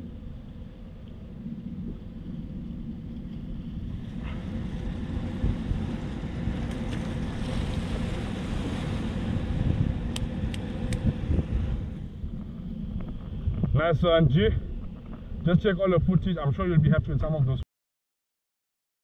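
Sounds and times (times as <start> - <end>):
sea waves washing: 0.0 - 12.9
wind buffeting microphone: 0.0 - 17.6.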